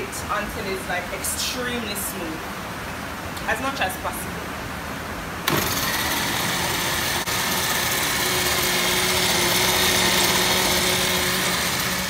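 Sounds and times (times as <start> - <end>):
blender grinding nuts: 5.5 - 12.0.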